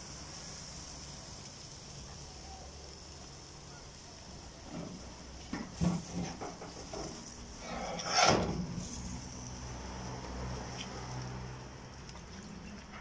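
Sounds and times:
metal grill grate scraping: 4.6 - 13.0.

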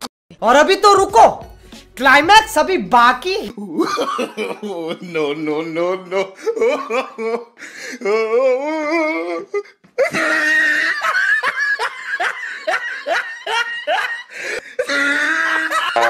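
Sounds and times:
hearty laughter: 3.5 - 7.8, 10.0 - 16.0.

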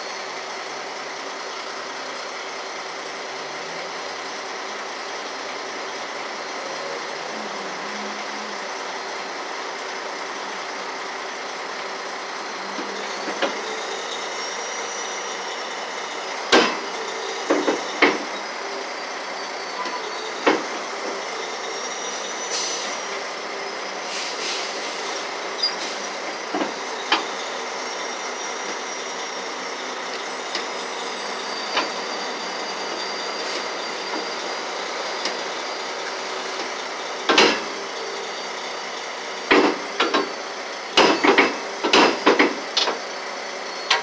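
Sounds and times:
tow truck engine running: 0.0 - 44.0
high wavering squeal: 12.4 - 39.4.

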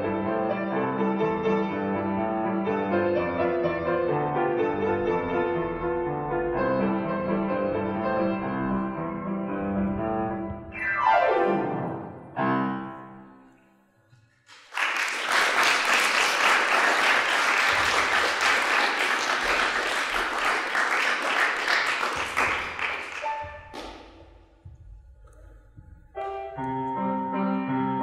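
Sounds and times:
audience applauding: 14.4 - 24.1.

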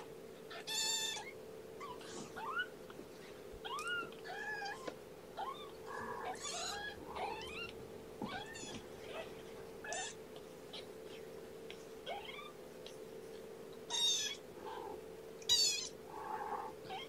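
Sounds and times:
steady low hum: 0.0 - 17.0
kittens mewing: 3.6 - 11.0, 12.0 - 12.6, 13.9 - 17.0.

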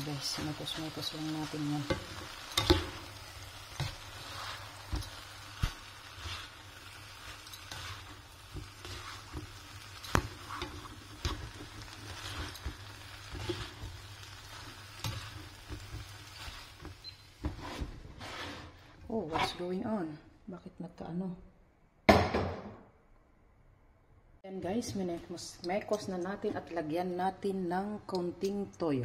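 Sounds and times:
rice sizzling in a pan: 0.0 - 18.8
spatula scraping and tapping pan: 0.2 - 18.8.

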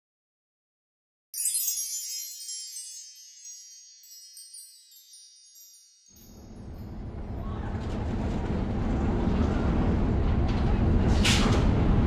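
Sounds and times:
high chimes ringing: 1.4 - 7.4.

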